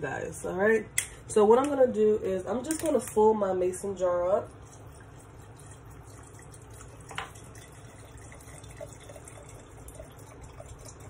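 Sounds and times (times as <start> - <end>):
liquid trickling into glass jar: 4.4 - 11.0.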